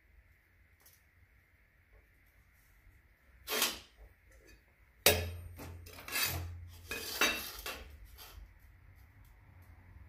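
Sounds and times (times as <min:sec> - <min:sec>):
metal scraping on metal: 0:03.4 - 0:08.5.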